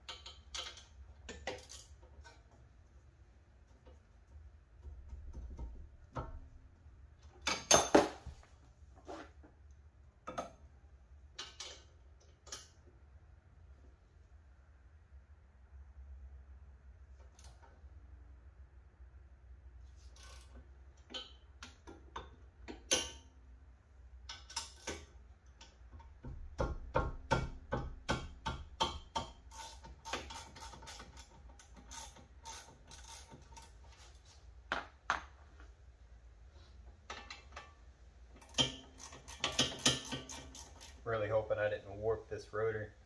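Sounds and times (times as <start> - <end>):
hand ratchet clicking: 38.4 - 41.0.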